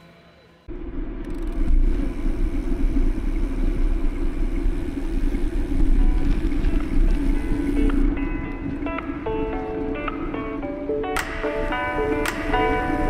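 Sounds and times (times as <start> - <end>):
wind buffeting microphone: 0.7 - 13.0.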